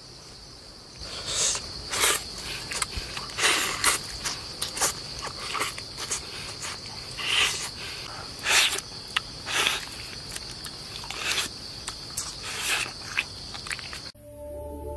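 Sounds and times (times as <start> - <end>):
insects chirring: 0.0 - 14.9
wet smacking and slurping: 1.0 - 14.1.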